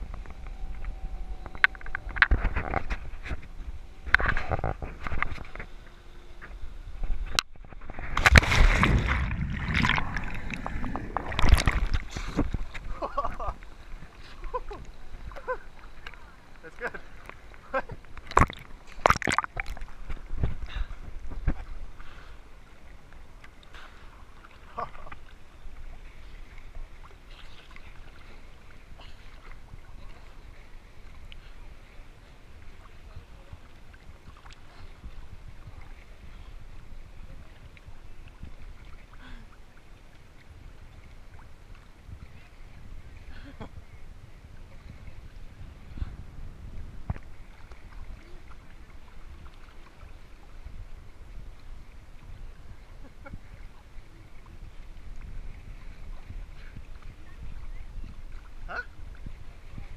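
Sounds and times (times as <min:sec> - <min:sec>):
water sloshing against camera housing: 0:00.0 - 0:16.2, 0:16.8 - 0:21.8
sea water lapping against camera: 0:00.0 - 0:59.9
water slaps: 0:07.3 - 0:13.6, 0:18.0 - 0:20.7.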